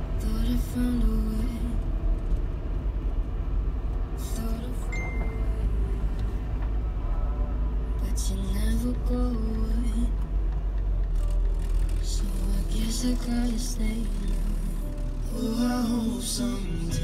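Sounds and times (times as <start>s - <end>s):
car engine and road rumble: 0.0s - 17.0s
short high beep: 5.0s - 5.5s.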